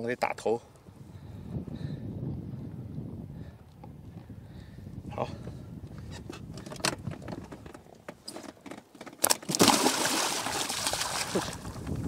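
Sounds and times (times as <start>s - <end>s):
fish slapping the water: 9.3s - 11.8s
heavy splashing at water surface: 9.5s - 11.8s.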